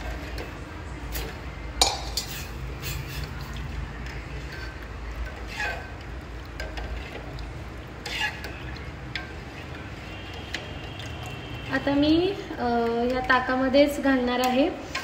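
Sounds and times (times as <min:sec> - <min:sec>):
spoon stirring in a pot: 0:00.0 - 0:15.0
spoon clinking against pot: 0:01.1 - 0:03.0.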